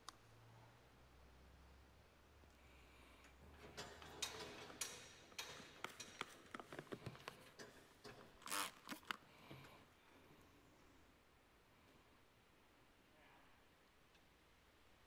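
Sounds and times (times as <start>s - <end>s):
faint clicks and knocks of tools: 2.4s - 8.4s.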